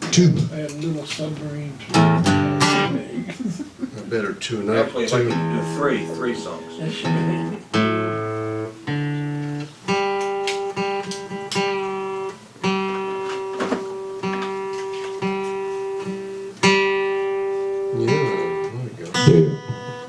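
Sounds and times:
guitar note plucked: 1.9s - 3.0s, 5.2s - 20.0s
guitar chords strummed: 1.9s - 3.1s, 5.0s - 20.0s.

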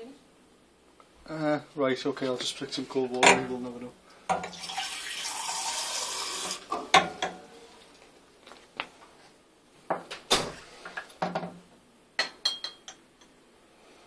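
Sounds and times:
running tap water: 4.4s - 6.7s
glassware clinking and knocking: 6.7s - 7.5s, 12.2s - 13.0s.

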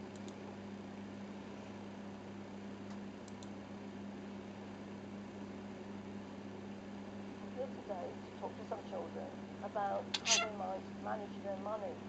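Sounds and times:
faint high ticks: 2.9s - 3.6s.

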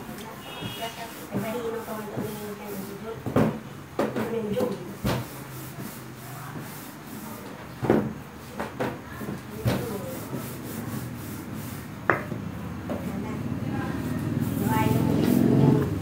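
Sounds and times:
rolling pin rubbing over dough: 0.6s - 3.6s, 4.4s - 12.3s, 14.0s - 16.0s
rolling pin knocking on table: 12.0s - 13.0s.

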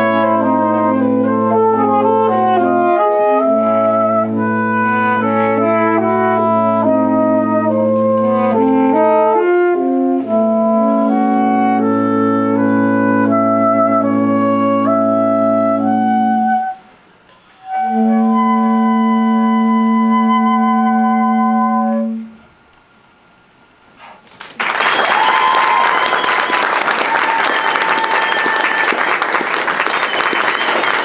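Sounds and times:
saxophone quartet playing: 0.0s - 16.9s, 17.6s - 22.4s
audience applause: 24.2s - 31.0s.

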